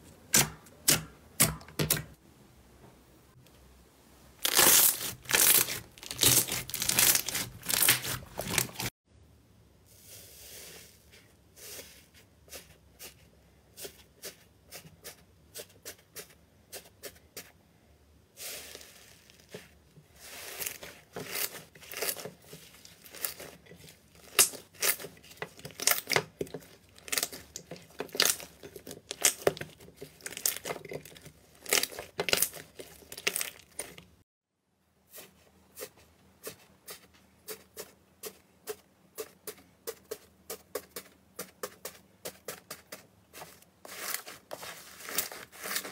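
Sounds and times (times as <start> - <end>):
slime crackling and tearing: 4.4 - 8.9, 20.4 - 34.1.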